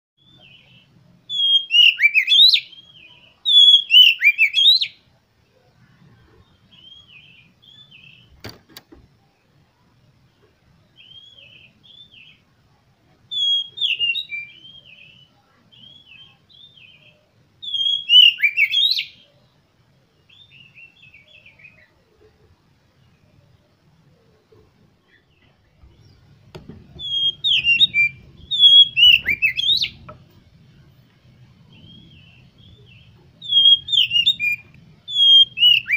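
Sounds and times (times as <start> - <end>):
bird singing whistled notes: 0.2 - 5.1, 6.7 - 8.4, 10.9 - 12.4, 13.3 - 19.5, 20.2 - 22.0, 25.1 - 30.2, 31.6 - 35.9
sharp knock: 26.5 - 27.8.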